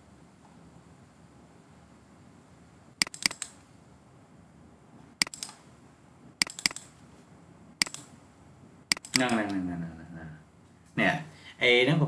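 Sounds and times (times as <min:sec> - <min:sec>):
faint steady hiss: 0:00.0 - 0:12.0
computer mouse button clicks: 0:03.0 - 0:03.6, 0:06.4 - 0:06.9, 0:07.8 - 0:08.1, 0:08.9 - 0:09.4.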